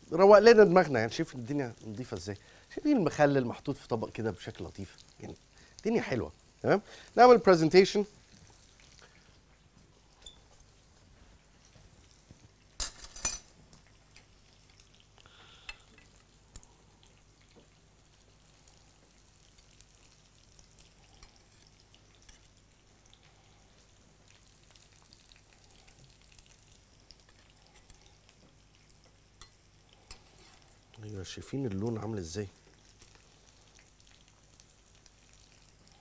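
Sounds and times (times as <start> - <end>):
tongs clinking against pan and plate: 12.8 - 14.4, 15.6 - 16.2, 29.3 - 30.6.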